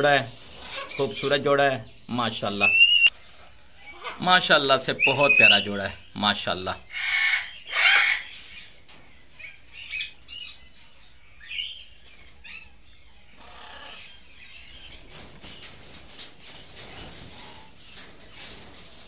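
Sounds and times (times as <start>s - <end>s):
birds clicking and rustling: 0.0s - 6.7s, 7.3s - 10.6s, 13.4s - 19.0s
cockatoos squeaky calls: 6.9s - 8.4s.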